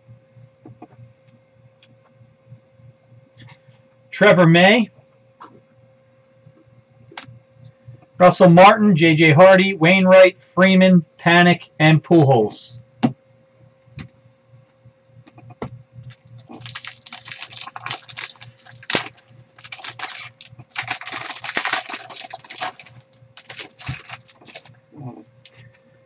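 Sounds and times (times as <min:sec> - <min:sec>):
faint steady hum: 0:00.0 - 0:26.0
foil wrapper crackling: 0:16.0 - 0:24.7.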